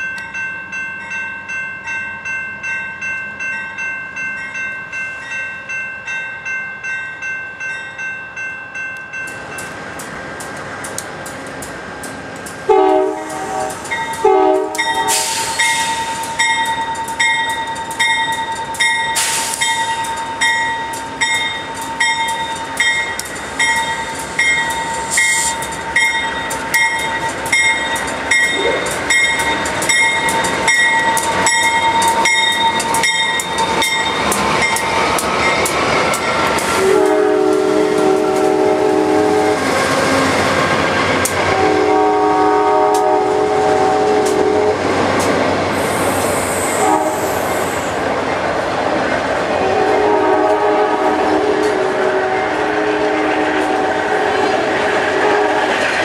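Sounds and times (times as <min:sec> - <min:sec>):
train bell ringing: 0:00.0 - 0:39.0
train rolling past: 0:00.0 - 0:56.0
locomotive air horn blasts: 0:12.7 - 0:15.6, 0:36.7 - 0:39.7, 0:41.5 - 0:44.8, 0:46.5 - 0:47.5, 0:49.6 - 0:55.8.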